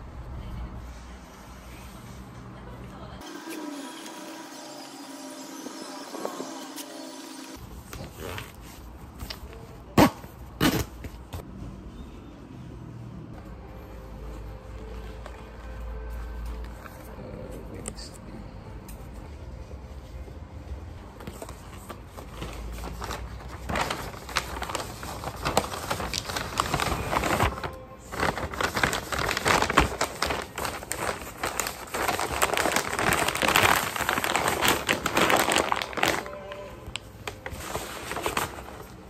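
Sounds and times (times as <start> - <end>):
paper crinkling and rustling: 21.1 - 39.0.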